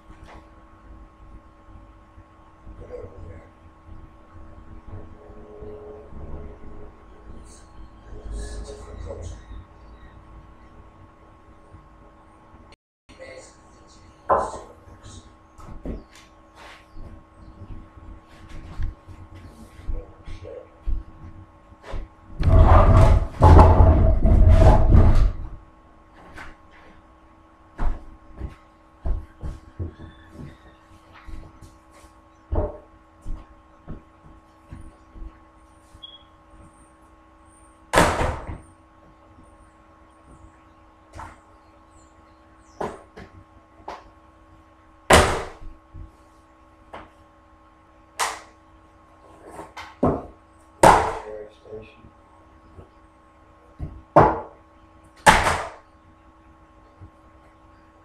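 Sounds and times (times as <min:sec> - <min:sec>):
bench scraping on wooden floor: 0:22.4 - 0:25.4.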